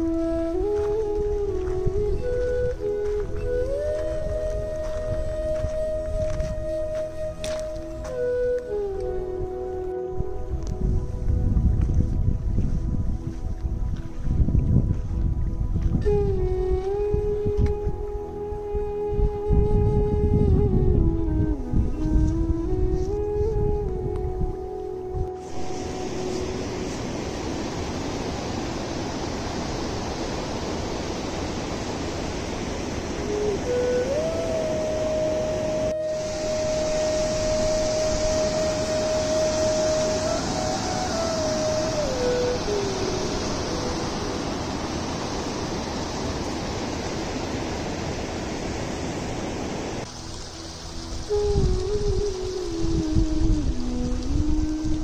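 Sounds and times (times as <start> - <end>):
steady rushing noise: 21.5 - 55.0.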